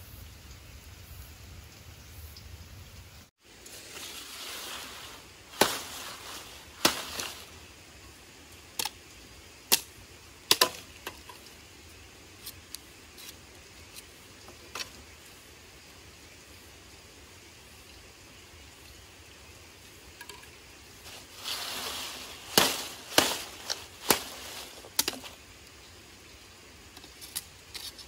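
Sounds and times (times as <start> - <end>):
light hissing rustle: 0.0 - 28.0
firewood cracking and popping: 9.7 - 11.6, 21.1 - 25.4.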